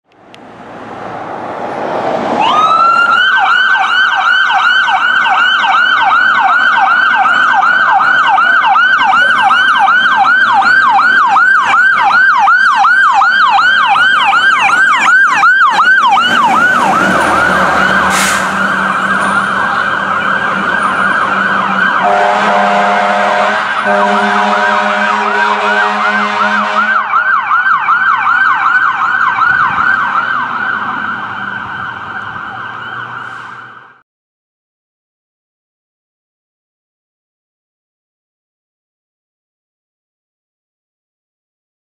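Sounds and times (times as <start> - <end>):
fire engine siren wailing: 0.6 - 34.0
deep horn blasts: 16.7 - 27.1.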